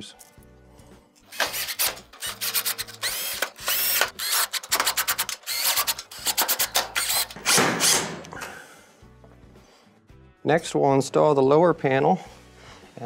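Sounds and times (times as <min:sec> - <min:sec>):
cordless drill whining: 0:01.3 - 0:08.4.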